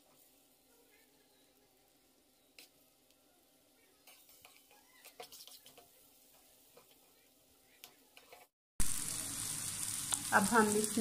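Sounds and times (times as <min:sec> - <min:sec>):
food sizzling in pan: 0:00.0 - 0:11.0
metal spoon scraping frying pan: 0:04.0 - 0:08.5.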